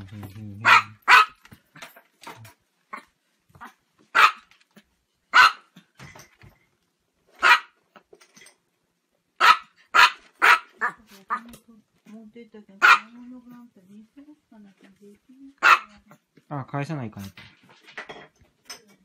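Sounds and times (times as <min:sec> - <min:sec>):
small dog barking: 0:00.6 - 0:01.4, 0:03.6 - 0:04.5, 0:05.3 - 0:05.8, 0:07.4 - 0:07.8, 0:09.4 - 0:11.4, 0:12.8 - 0:13.2, 0:15.6 - 0:16.2.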